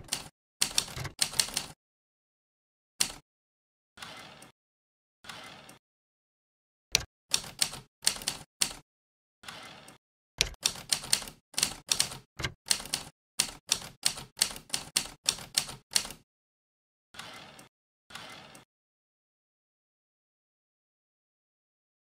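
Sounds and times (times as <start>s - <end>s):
typewriter keys striking: 0.0s - 1.8s, 3.0s - 3.2s, 7.0s - 8.8s, 10.4s - 16.2s.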